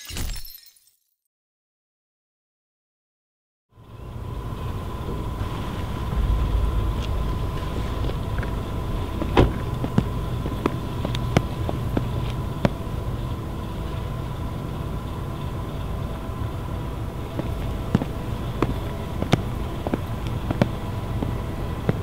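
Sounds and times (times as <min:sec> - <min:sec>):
faint hum: 0:03.7 - 0:22.0
low background rumble: 0:03.8 - 0:22.0
footsteps on pavement: 0:06.9 - 0:14.4, 0:17.2 - 0:22.0
car door shutting: 0:09.2 - 0:10.0.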